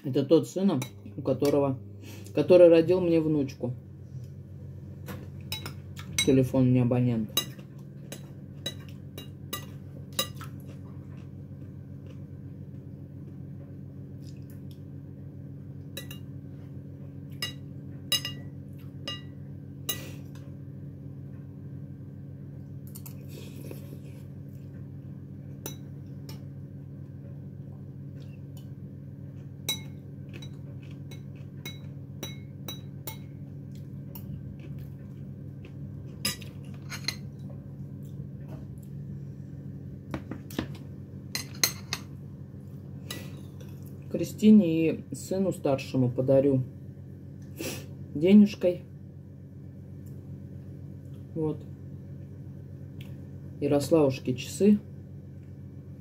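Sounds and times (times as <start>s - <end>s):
steady low hum: 0.0s - 56.0s
cutlery clinking on a plate: 17.4s - 18.5s, 36.2s - 37.3s, 41.4s - 42.1s
cutlery scrape: 36.3s - 37.2s.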